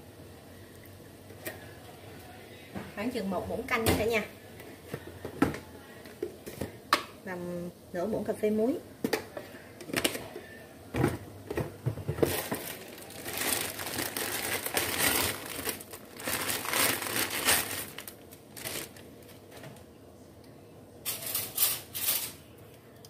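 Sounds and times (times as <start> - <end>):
plastic bag crinkling: 12.1 - 19.7.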